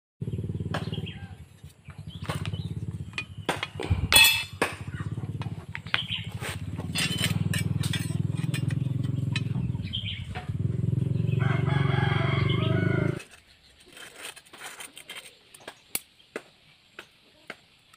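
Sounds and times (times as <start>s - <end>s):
low motor hum: 0.2s - 13.3s
metal blades clinking: 3.2s - 4.9s, 6.6s - 9.9s.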